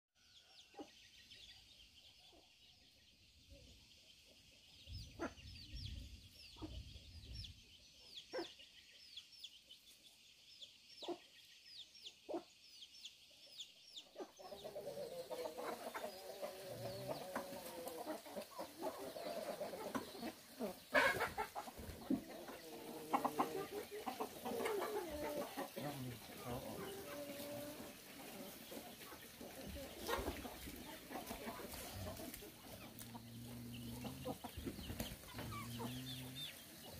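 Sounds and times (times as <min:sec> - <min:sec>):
chickens clucking: 0:00.3 - 0:36.9.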